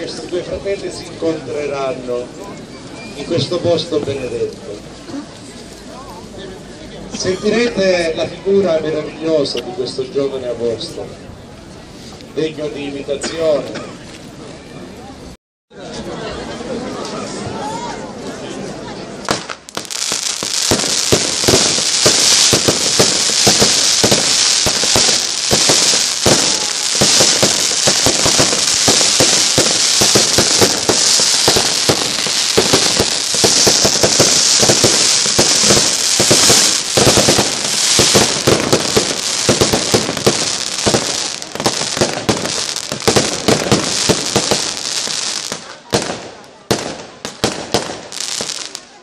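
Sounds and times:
fireworks and firecrackers banging: 0:19.2 - 0:49.0.

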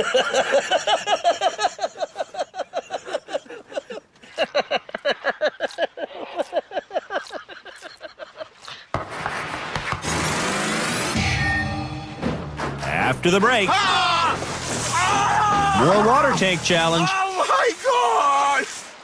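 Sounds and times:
person laughing: 0:00.0 - 0:08.9.

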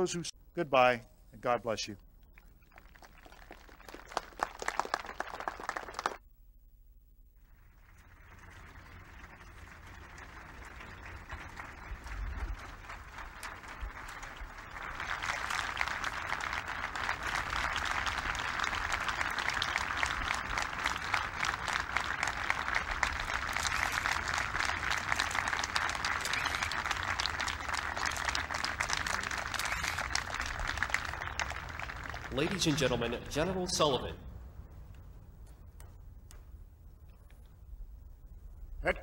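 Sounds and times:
crowd applauding: 0:02.4 - 0:06.2, 0:07.6 - 0:34.1.

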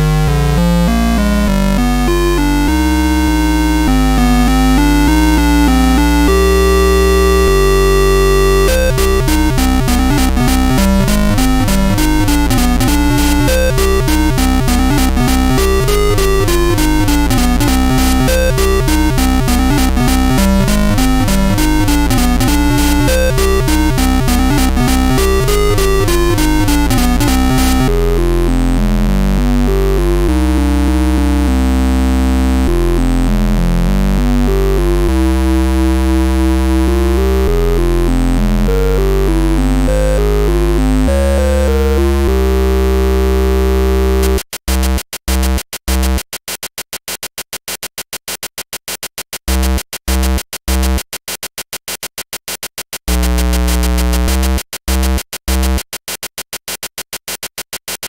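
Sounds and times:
chiptune music: 0:00.0 - 0:44.4.

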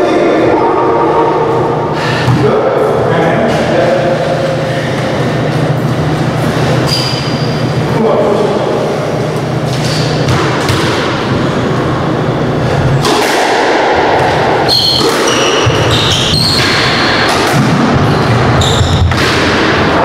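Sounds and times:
squash ball thudding: 0:10.1 - 0:11.5, 0:13.0 - 0:20.0
shoes squeaking on wooden floor: 0:18.6 - 0:19.1.

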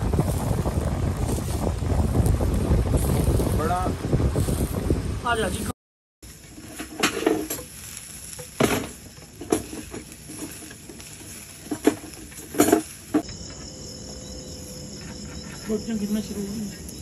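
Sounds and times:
meat sizzling on a grill: 0:00.0 - 0:04.8, 0:06.2 - 0:13.2
coals crackling and popping: 0:00.0 - 0:17.0
crickets chirping: 0:08.4 - 0:17.0.

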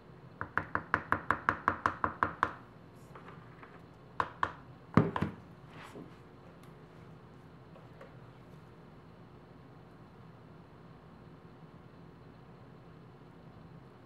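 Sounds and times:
knocks on plastic bucket: 0:04.2 - 0:05.4.

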